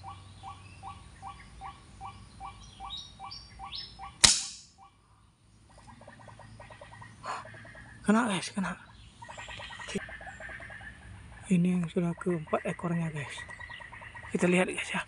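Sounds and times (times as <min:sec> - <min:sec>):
waterhen calling: 0:00.0 - 0:05.0, 0:05.6 - 0:15.0
sharp gunshot: 0:04.2 - 0:04.7.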